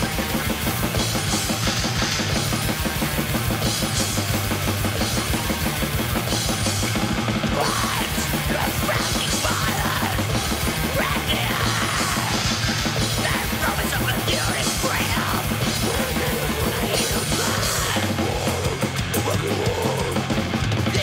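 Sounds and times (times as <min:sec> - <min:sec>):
distorted guitar and bass: 0:00.0 - 0:21.0
fast dense drumming: 0:00.0 - 0:21.0
harsh screamed vocals: 0:07.4 - 0:21.0.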